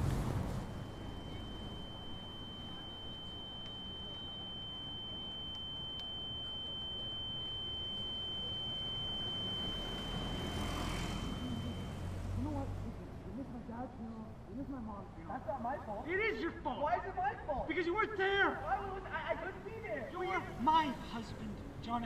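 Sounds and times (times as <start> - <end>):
high-pitched ringing tone: 0.3 - 12.8.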